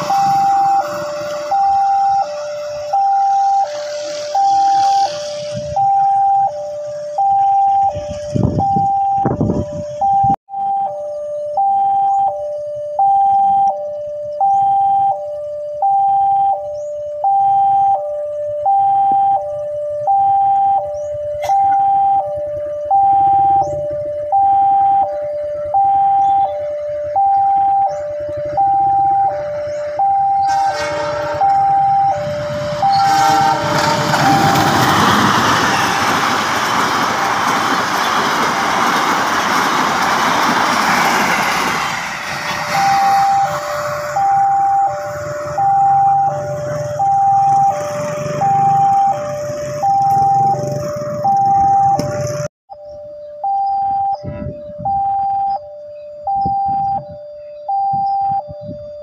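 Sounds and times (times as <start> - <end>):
two-tone crossing alarm: 0.0 - 59.0
train wheels rumbling on rails: 30.5 - 52.5.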